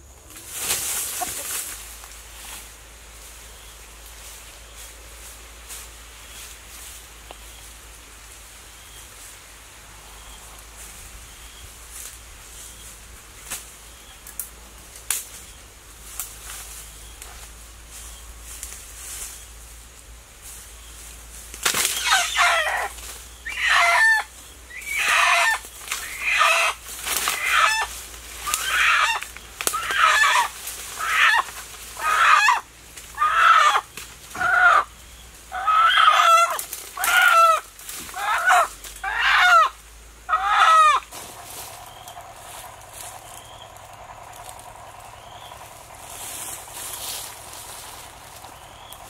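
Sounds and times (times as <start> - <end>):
chicken squawking in alarm: 22.0 - 22.9, 23.5 - 32.6, 33.2 - 34.9, 35.5 - 41.1.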